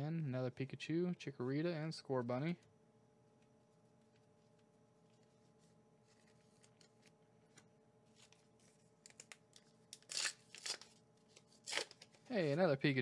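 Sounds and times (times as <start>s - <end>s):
faint steady hum: 0.0s - 13.0s
cards and wrappers rustling: 4.0s - 12.8s.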